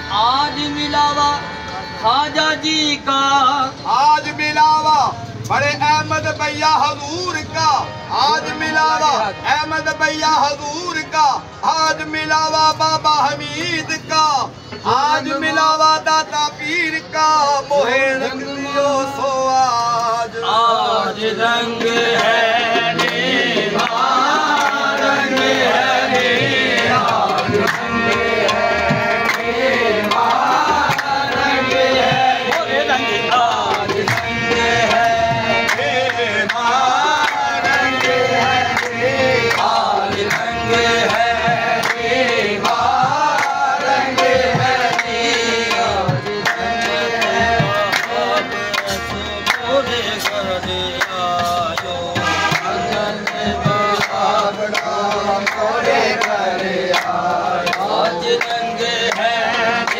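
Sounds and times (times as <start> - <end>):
harmonium chords: 0.0 - 59.9
man singing: 0.0 - 59.9
percussion beat: 20.0 - 59.9.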